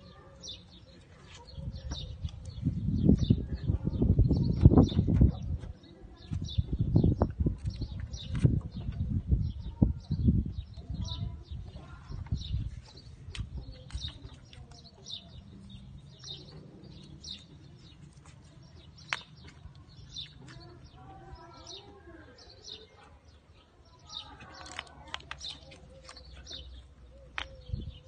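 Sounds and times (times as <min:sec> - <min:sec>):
small bird chirping: 0:06.1 - 0:28.0.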